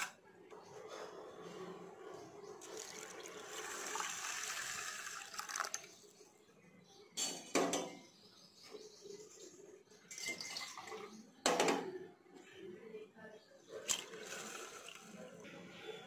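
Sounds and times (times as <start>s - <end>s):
water pouring into a pot: 2.6s - 6.0s, 10.2s - 11.1s, 13.9s - 15.2s.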